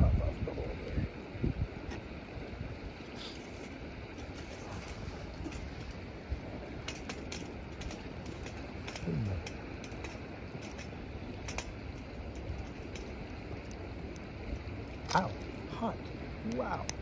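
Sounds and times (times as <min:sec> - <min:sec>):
wind: 0:00.0 - 0:17.0
sharp clicks and ticks: 0:06.8 - 0:15.6, 0:16.5 - 0:17.0.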